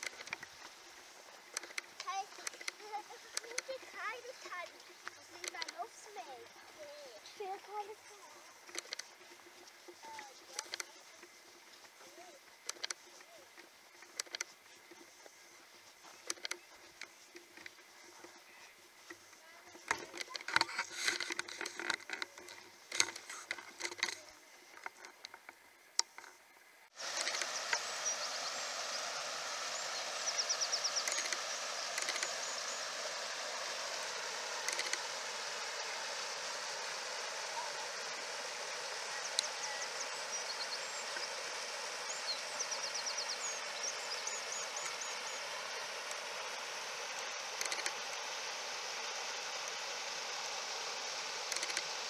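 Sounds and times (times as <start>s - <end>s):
high chirping calls: 27.0s - 51.1s
rocky stream rushing: 27.0s - 52.0s.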